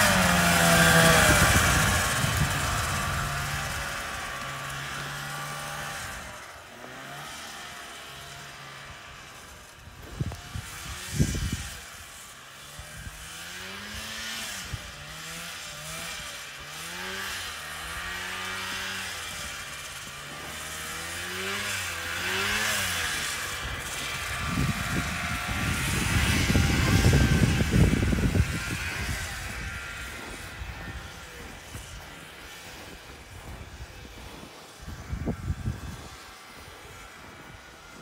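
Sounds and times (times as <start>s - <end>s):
snowmobile engine revving: 0.0s - 38.0s.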